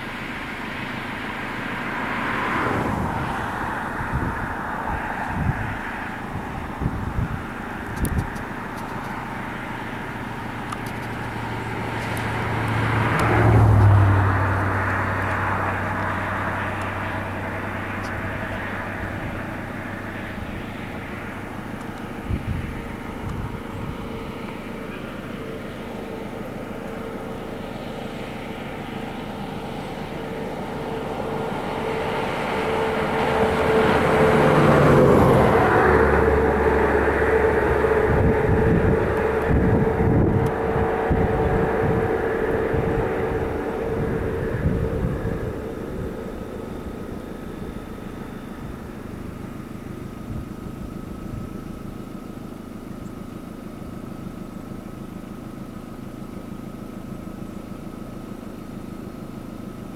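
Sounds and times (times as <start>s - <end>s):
passing engine: 0.0s - 59.9s
steady hum: 9.2s - 53.7s.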